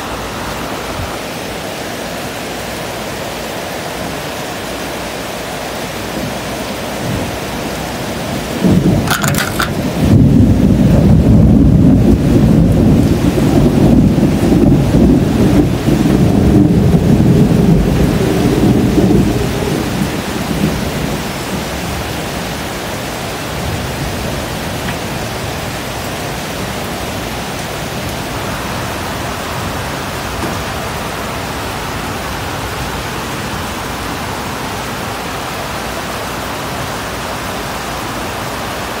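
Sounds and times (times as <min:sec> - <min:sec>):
heavy rain falling: 0:00.0 - 0:39.0
thunder rumbling: 0:07.0 - 0:22.0.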